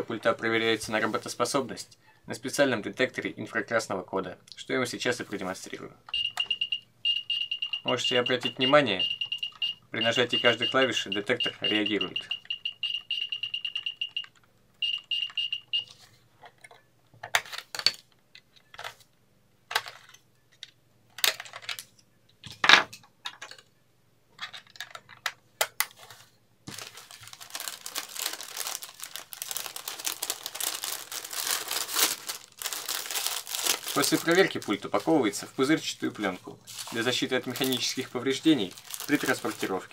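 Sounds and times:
detector beeping high tone: 0:06.2 - 0:14.2
bubble wrap crinkling: 0:26.7 - 0:39.9.

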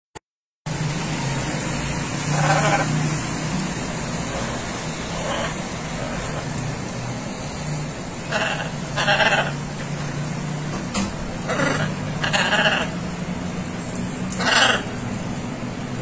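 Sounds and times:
macaw hoarse calls: 0:02.3 - 0:03.1, 0:08.2 - 0:09.7, 0:11.4 - 0:13.0, 0:14.3 - 0:15.0.

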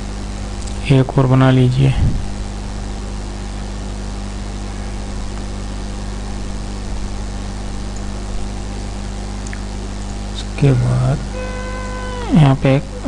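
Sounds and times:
steady low hum: 0:00.0 - 0:13.0
even hiss: 0:10.3 - 0:13.0.

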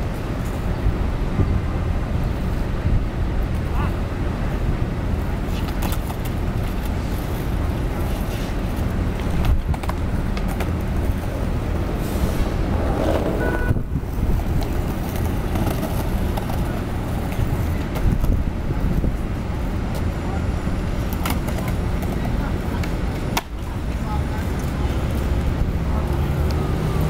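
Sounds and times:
city street traffic: 0:00.0 - 0:27.0
skateboards clacking on concrete: 0:05.3 - 0:20.2, 0:20.8 - 0:27.0.

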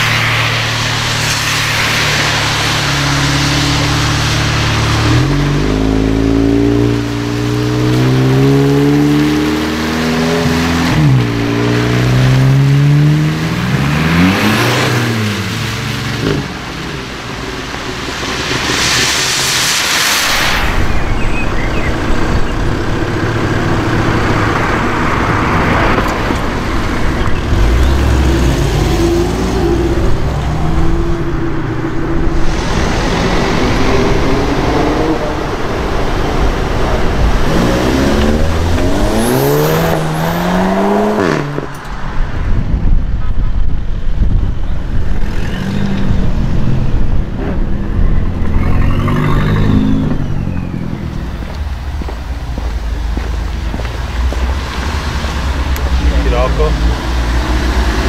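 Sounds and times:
car engines revving: 0:00.0 - 0:58.0.

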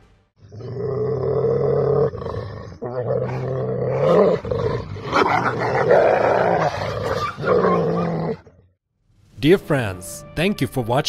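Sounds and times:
dog growling: 0:00.6 - 0:08.5.

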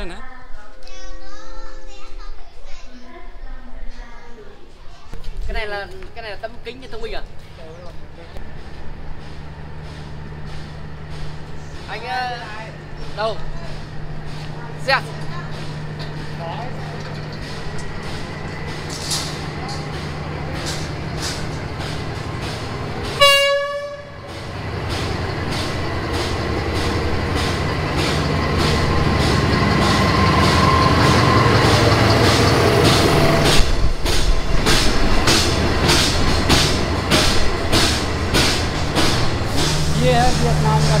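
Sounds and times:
diesel train engine rumbling: 0:00.0 - 0:41.0
wheels clacking over rail joints: 0:05.2 - 0:41.0
train horn blast: 0:23.0 - 0:24.4, 0:39.5 - 0:41.0.

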